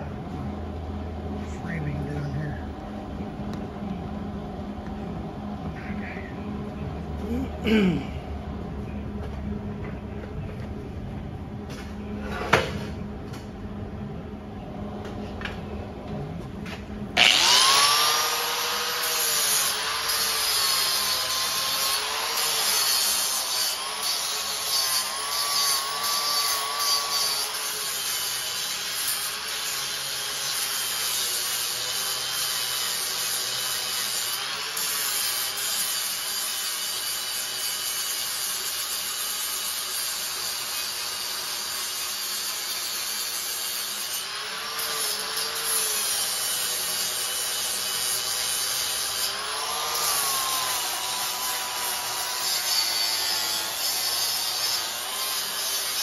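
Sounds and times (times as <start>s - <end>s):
angle grinder grinding steel: 17.2s - 56.0s.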